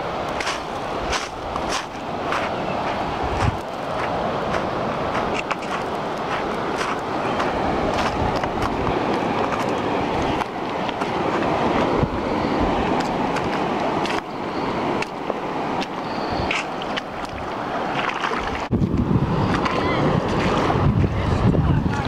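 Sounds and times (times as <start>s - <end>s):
moving seawater: 0.0s - 22.0s
wind on microphone: 0.0s - 22.0s
small clicks and splashes: 16.5s - 18.7s.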